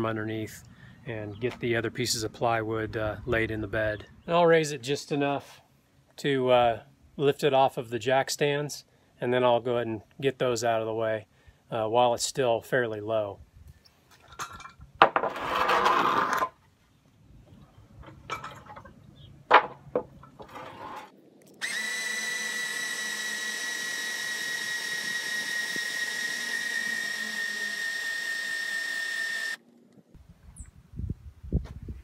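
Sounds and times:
scrape: 15.3 - 16.5
electric jack motor whine: 20.5 - 29.6.

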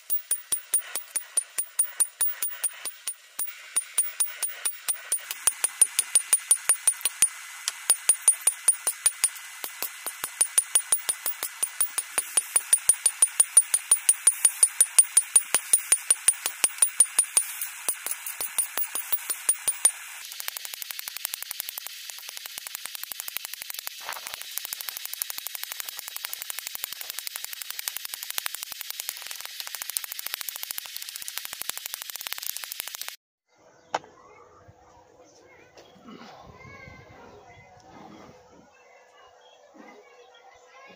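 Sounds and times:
hammer striking metal on anvil: 0.0 - 20.2.

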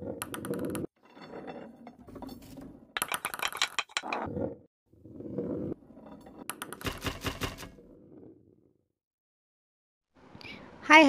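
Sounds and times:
ball rolling on track: 0.0 - 8.8.

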